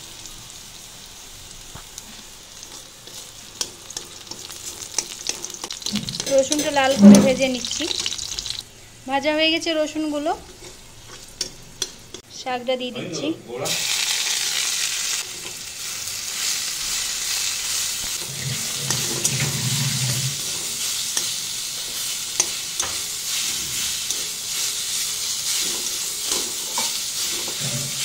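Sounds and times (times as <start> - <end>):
greens sizzling in oil: 0.0 - 12.4, 13.6 - 28.0
steel spatula scraping a wok: 2.6 - 8.6, 10.4 - 12.2, 18.1 - 28.0.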